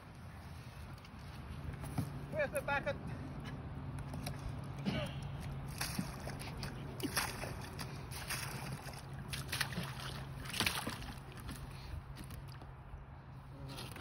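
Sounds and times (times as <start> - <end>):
water splashing and sloshing: 3.0 - 14.0.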